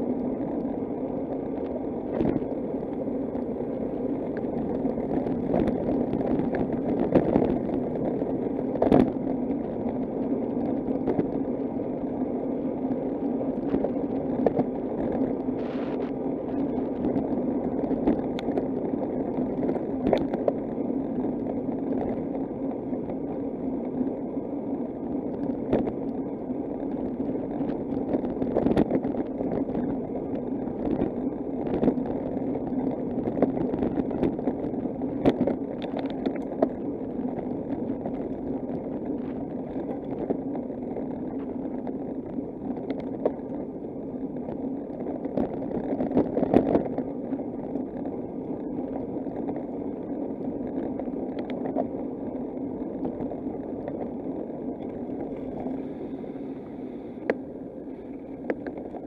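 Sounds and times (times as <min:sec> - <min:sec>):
road and wind rumble: 0:00.0 - 0:59.0.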